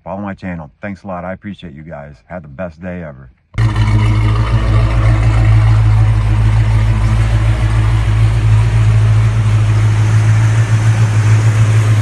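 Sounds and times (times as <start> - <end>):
car engine idling: 3.6 - 12.0.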